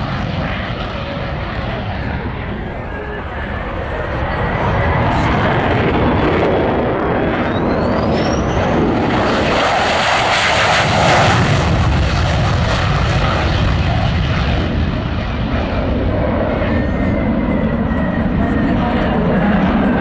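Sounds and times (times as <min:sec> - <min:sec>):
jet fighter roar: 0:00.0 - 0:20.0.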